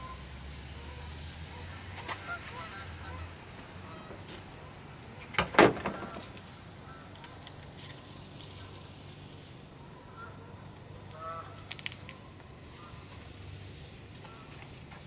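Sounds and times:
steady low background noise: 0.0s - 15.0s
faint clicks: 10.6s - 12.3s.

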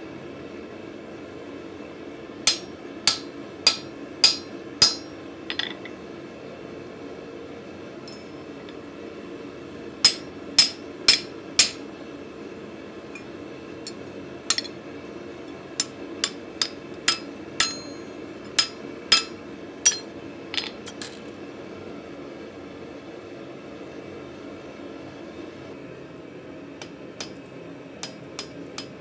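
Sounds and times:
hammer striking chisel on steel: 2.5s - 5.8s, 10.1s - 11.8s, 15.8s - 20.1s, 28.0s - 29.0s.

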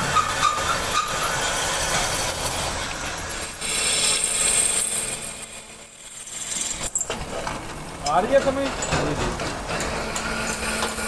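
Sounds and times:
drill press squealing through metal: 0.0s - 7.2s, 9.8s - 11.0s.

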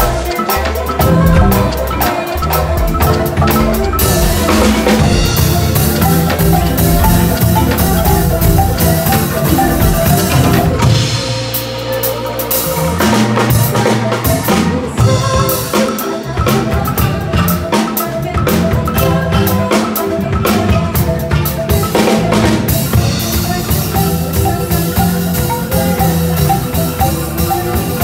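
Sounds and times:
woman singing into microphone: 0.0s - 5.1s, 11.6s - 28.0s
drum kit: 0.0s - 28.0s
wooden xylophones played: 0.0s - 28.0s.

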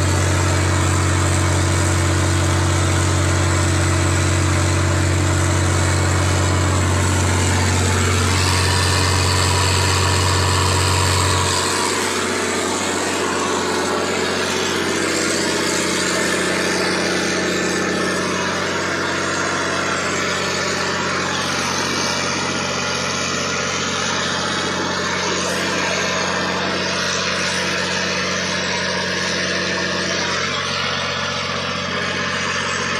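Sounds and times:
boat engine running: 0.0s - 32.9s.

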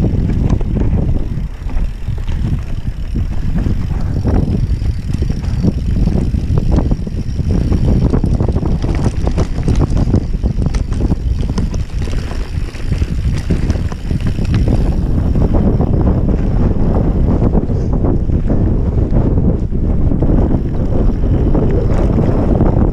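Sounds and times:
bike rattling over bumps: 0.0s - 22.9s
tyre noise on dirt: 0.0s - 22.9s
wind buffeting microphone: 0.0s - 22.9s.

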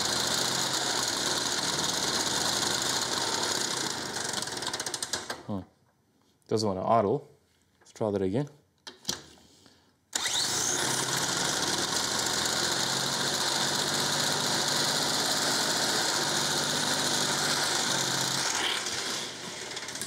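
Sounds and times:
mower engine running loud: 0.0s - 4.6s, 10.4s - 20.0s.

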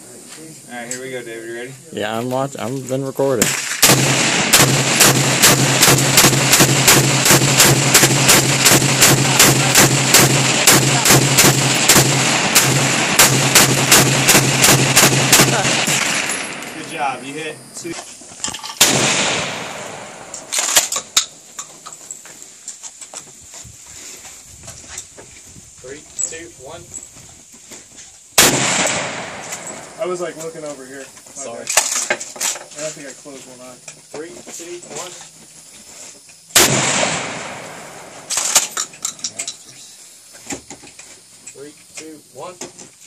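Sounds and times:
gunshot echo: 3.4s - 17.0s, 18.8s - 20.9s, 28.4s - 30.0s, 36.6s - 38.6s.

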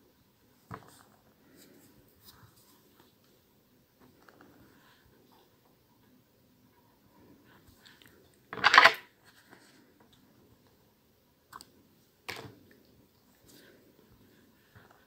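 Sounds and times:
rustle of thread being handled: 0.4s - 6.0s, 9.2s - 10.8s, 11.5s - 15.0s.

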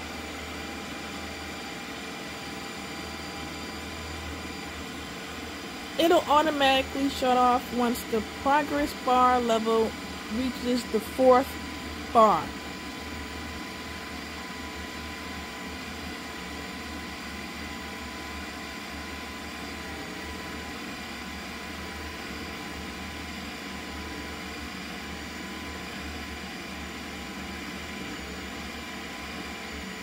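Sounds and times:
ice cream maker whirring: 0.0s - 30.0s.

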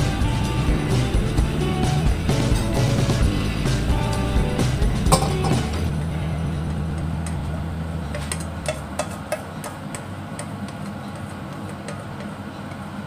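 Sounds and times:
low steady hum: 0.0s - 13.0s
spatula scraping metal bowl: 8.1s - 12.8s.

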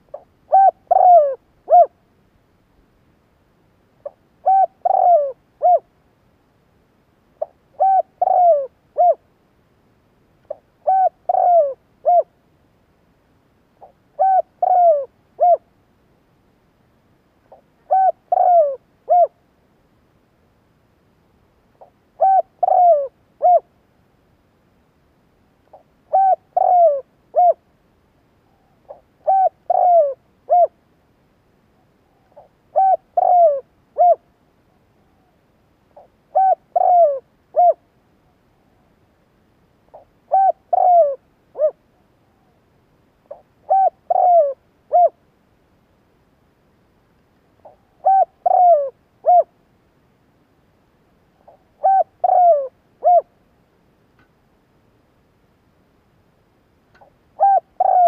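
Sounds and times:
dove cooing: 0.0s - 2.0s, 4.0s - 5.9s, 7.4s - 9.3s, 10.5s - 12.3s, 13.8s - 15.7s, 17.5s - 19.4s, 21.8s - 23.8s, 25.7s - 27.7s, 28.4s - 30.8s, 32.0s - 34.3s, 36.0s - 37.8s, 39.9s - 42.6s, 43.2s - 45.2s, 47.6s - 49.5s, 51.4s - 53.4s, 57.0s - 58.0s.

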